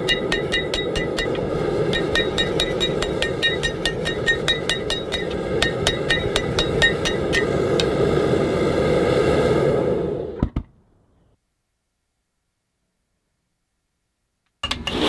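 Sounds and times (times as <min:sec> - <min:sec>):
hammer ringing on anvil: 0:00.0 - 0:07.6
forge noise: 0:00.0 - 0:10.6.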